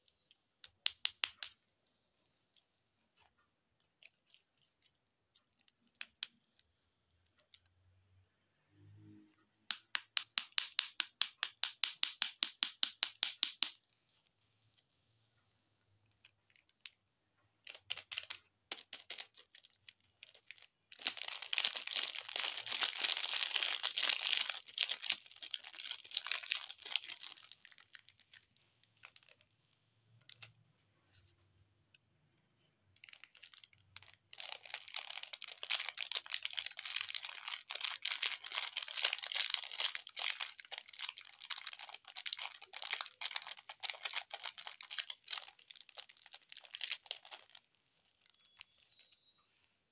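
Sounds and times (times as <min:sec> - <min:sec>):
plastic wrappers crinkling: 0:17.6 - 0:30.6, 0:32.9 - 0:49.2.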